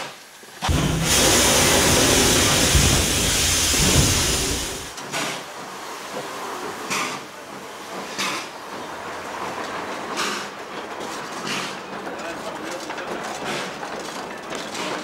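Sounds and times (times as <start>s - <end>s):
steam locomotive hissing: 0.0s - 10.8s, 11.4s - 12.0s.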